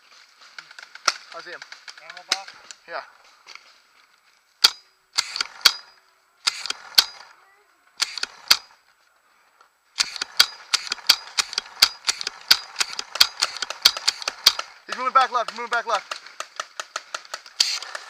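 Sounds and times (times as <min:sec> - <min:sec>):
paintball marker shots: 0:04.6 - 0:07.3, 0:08.0 - 0:08.7, 0:10.0 - 0:18.0.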